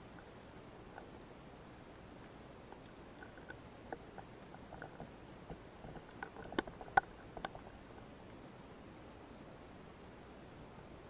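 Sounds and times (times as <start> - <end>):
small clicks and taps: 2.2 - 7.7.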